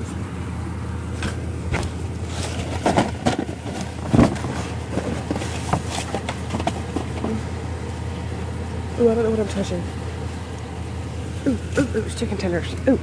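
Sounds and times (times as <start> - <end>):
steady low hum: 0.0 - 13.0
trash rustling and knocking: 1.2 - 7.6.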